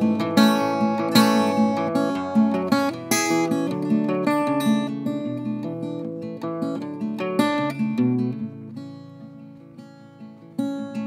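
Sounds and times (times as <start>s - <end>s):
solo acoustic guitar: 0.0s - 11.0s.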